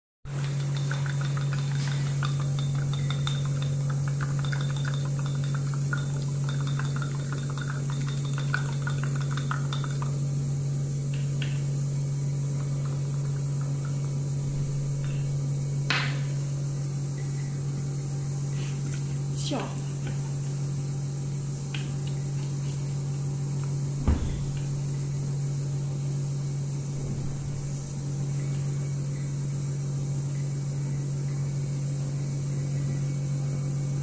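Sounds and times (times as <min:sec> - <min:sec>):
low electrical hum: 0:00.3 - 0:34.0
glass clinks and taps: 0:00.4 - 0:10.2
sharp knock: 0:24.0 - 0:24.7.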